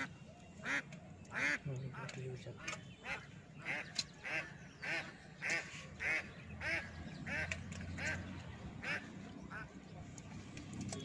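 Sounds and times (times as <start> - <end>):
duck quacking: 3.0 - 8.2.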